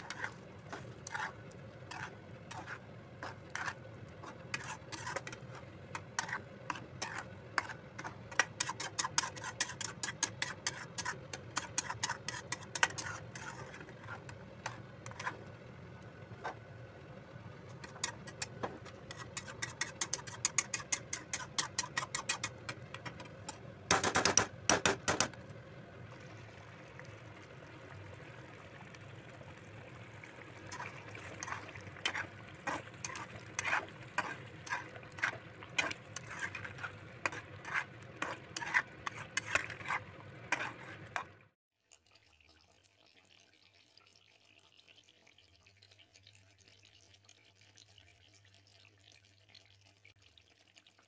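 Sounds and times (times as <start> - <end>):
spatula scraping metal pan: 0.0 - 15.6, 17.7 - 23.6, 30.6 - 41.4
sauce simmering and popping: 0.0 - 51.0.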